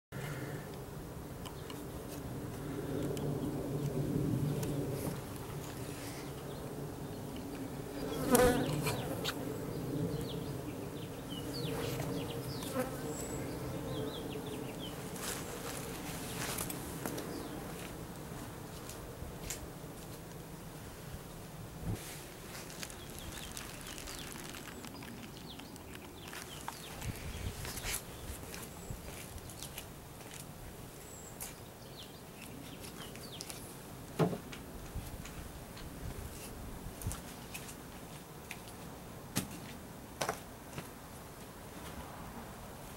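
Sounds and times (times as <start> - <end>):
honey bees buzzing: 7.6 - 18.4.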